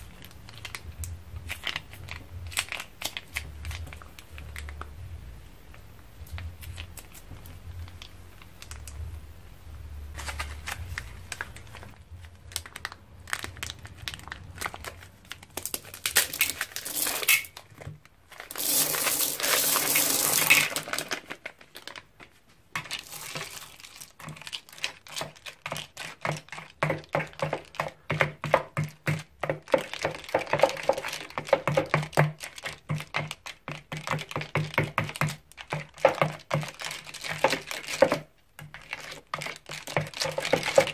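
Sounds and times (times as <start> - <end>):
spatula stirring slime: 10.1 - 40.9
plastic beads poured rattling: 15.6 - 17.6, 18.3 - 22.0, 22.8 - 25.5
slime squelching: 22.8 - 40.9.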